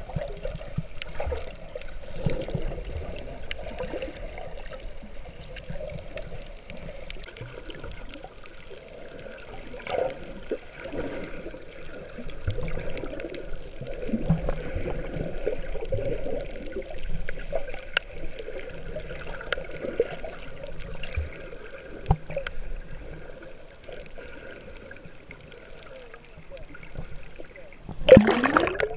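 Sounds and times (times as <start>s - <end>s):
muffled underwater water sloshing: 0.0s - 28.9s
faint clicks: 0.5s - 8.8s, 22.0s - 28.2s.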